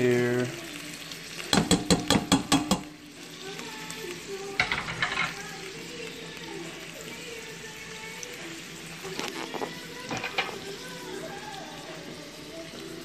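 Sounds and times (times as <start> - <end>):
colander tapping metal pot: 1.5 - 3.0.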